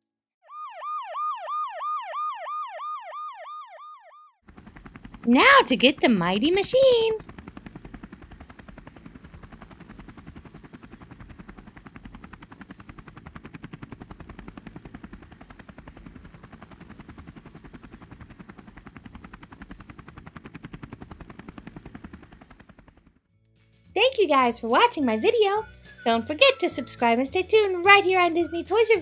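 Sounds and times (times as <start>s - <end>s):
toy helicopter rotor chopping: 4.6s - 23.0s.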